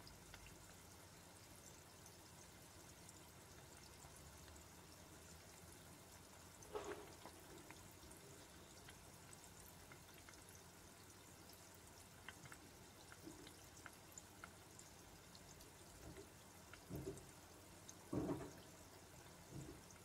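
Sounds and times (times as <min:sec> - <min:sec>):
food bubbling and sizzling in oil: 0:00.0 - 0:20.0.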